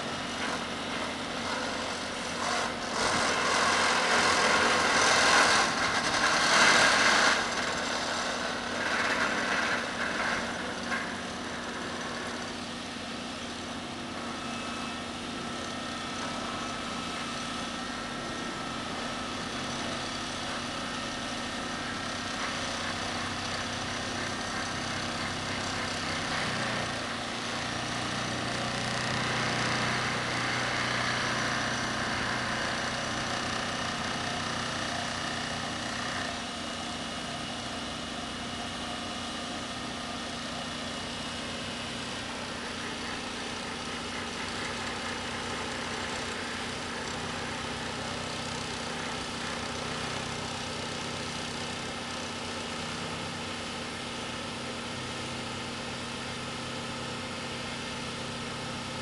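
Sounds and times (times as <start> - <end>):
vibratory pile driver buzzing: 0.0 - 21.0
diesel engine running: 0.0 - 59.0.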